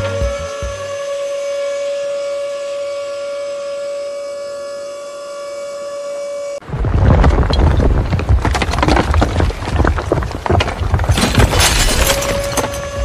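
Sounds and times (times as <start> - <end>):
bricks tumbling onto sand: 6.8 - 13.0.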